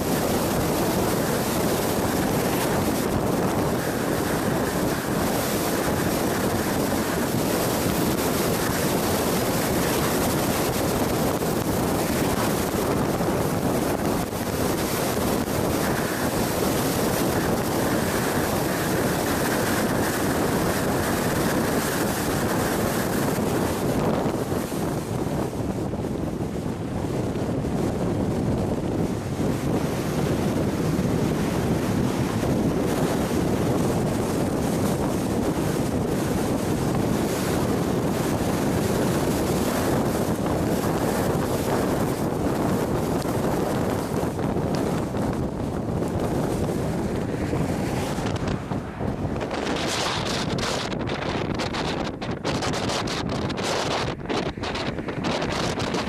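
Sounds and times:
tyre noise at highway speed: 0.0s - 56.0s
wind buffeting microphone: 0.0s - 56.0s.

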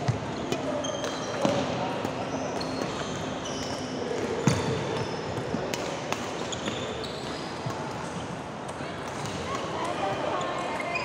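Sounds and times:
shoes squeaking on court floor: 0.0s - 8.2s, 10.1s - 11.0s
rackets hitting shuttlecock: 0.5s - 7.9s.

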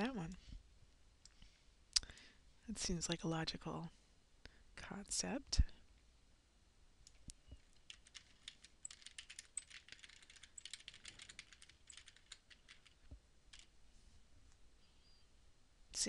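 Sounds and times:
typing on computer keyboard: 7.6s - 13.7s.

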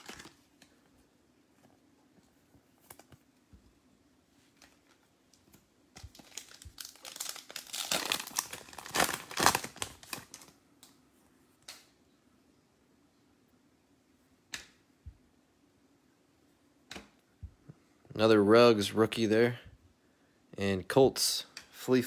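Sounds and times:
foil wrapper crinkling and tearing: 0.0s - 0.5s, 6.0s - 10.6s.

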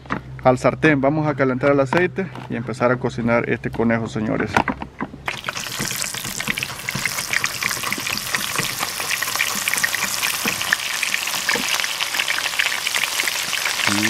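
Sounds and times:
meat sizzling in hot oil: 5.3s - 14.0s.

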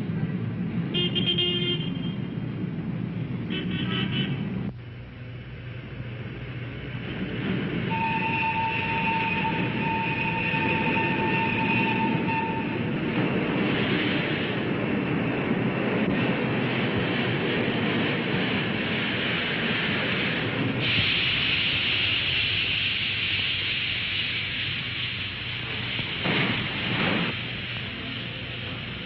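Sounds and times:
street traffic: 0.0s - 29.0s
underground train running: 0.0s - 29.0s
car horn toots: 1.0s - 2.2s, 7.9s - 12.8s
steady high tone: 7.9s - 12.9s.

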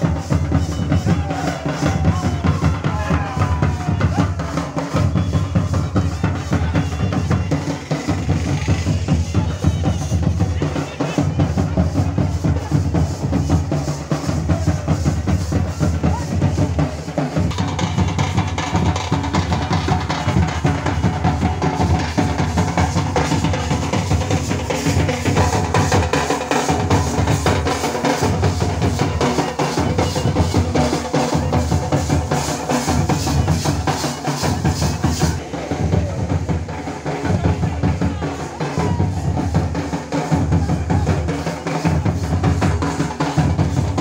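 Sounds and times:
bass drum: 0.0s - 44.0s
marching drum band: 0.0s - 44.0s
snare drum: 0.0s - 44.0s.

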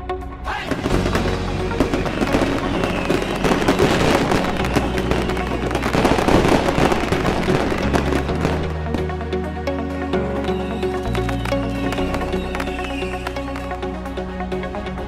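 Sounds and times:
background music: 0.0s - 15.0s
fireworks bangs and crackling: 0.6s - 9.0s, 10.5s - 13.7s.

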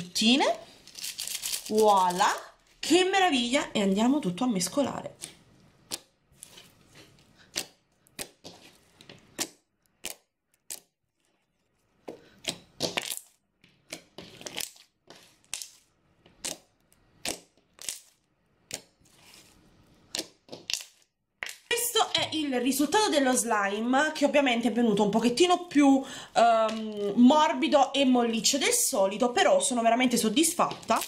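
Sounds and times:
slime squelching: 3.8s - 22.6s.

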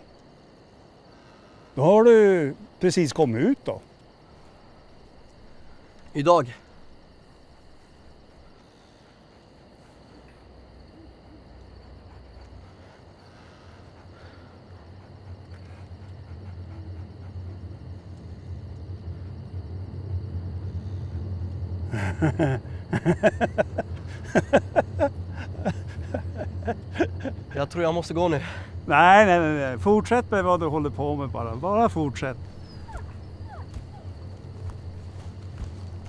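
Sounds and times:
low steady hum: 4.2s - 36.0s
man laughing: 21.9s - 27.6s.

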